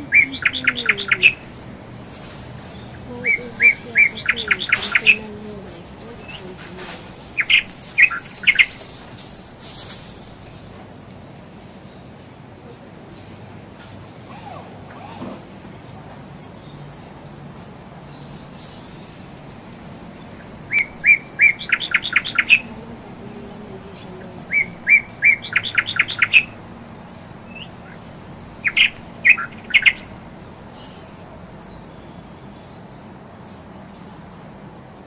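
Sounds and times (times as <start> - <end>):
bird chirping: 0.0 - 10.8, 18.0 - 33.0.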